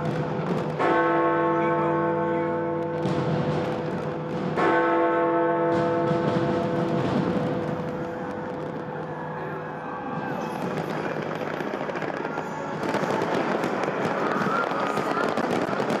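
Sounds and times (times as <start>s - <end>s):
fireworks crackling and popping: 0.0s - 1.0s, 2.8s - 5.0s, 5.7s - 16.0s
large bell tolling: 0.8s - 8.4s.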